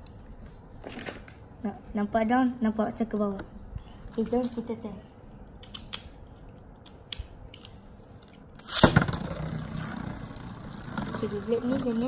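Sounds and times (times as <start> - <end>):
spinning top launch: 8.6 - 12.0
spinning top whirring: 8.6 - 12.0.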